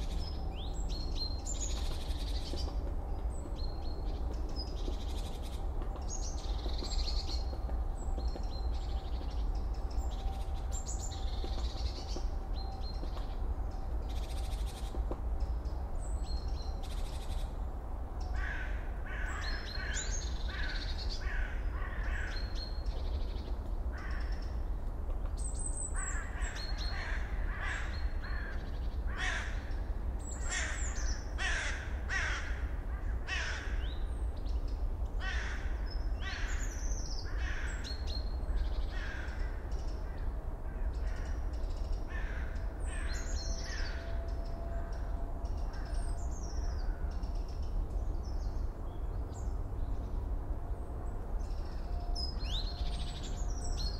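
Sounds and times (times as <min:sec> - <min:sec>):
crows cawing: 0:18.4 - 0:22.4, 0:26.0 - 0:29.7, 0:30.4 - 0:33.8, 0:35.2 - 0:37.9, 0:38.9 - 0:41.4, 0:42.1 - 0:44.1.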